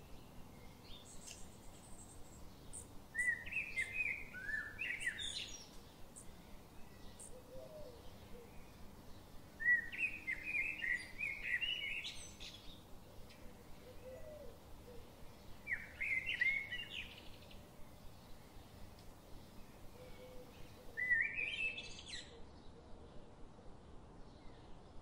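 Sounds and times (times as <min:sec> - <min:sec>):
faint high ticks: 0:18.9 - 0:19.2.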